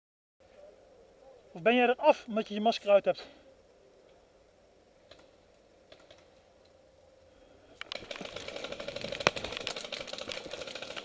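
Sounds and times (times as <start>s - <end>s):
faint clicks: 4.9s - 11.0s.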